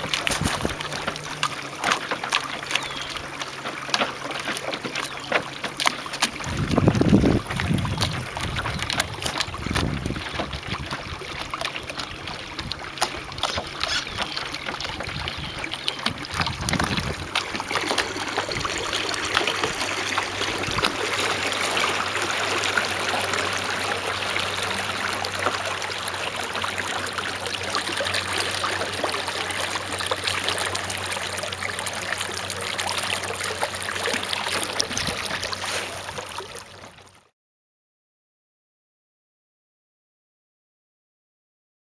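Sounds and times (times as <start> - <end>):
wind buffeting microphone: 0.0 - 1.4, 6.3 - 25.4
water splashing along boat hull: 0.0 - 37.3.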